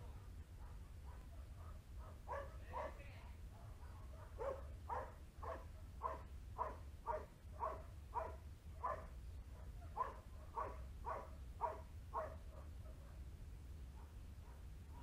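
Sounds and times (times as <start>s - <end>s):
dog barking: 0.0s - 13.2s, 13.9s - 15.0s.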